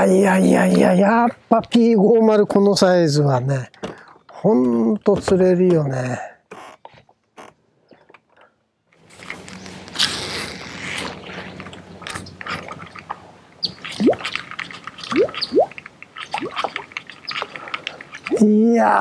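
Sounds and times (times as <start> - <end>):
small splashes: 11.1 - 18.5.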